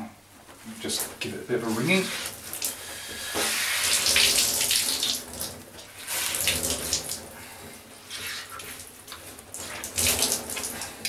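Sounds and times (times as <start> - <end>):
water dripping from wrung towel: 2.2 - 2.9, 3.8 - 7.3, 8.6 - 11.0.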